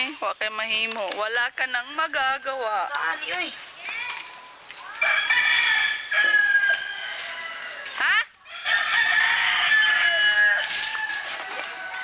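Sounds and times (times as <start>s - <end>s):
roosters crowing: 4.8s - 12.0s.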